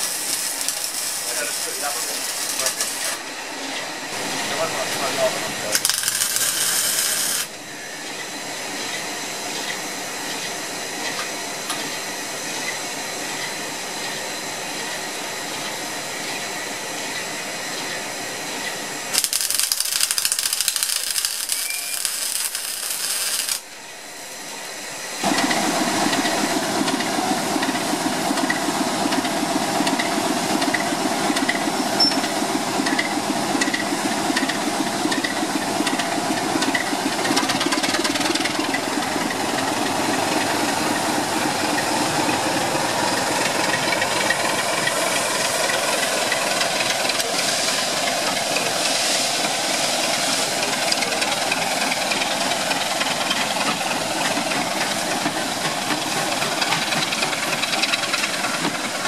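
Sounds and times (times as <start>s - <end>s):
arc welding crackling: 0.0s - 3.2s, 5.6s - 7.5s, 19.1s - 23.7s
steady hiss: 0.0s - 3.2s, 4.1s - 7.6s, 18.3s - 25.7s, 44.4s - 52.9s
diesel locomotive engine running: 0.0s - 59.0s.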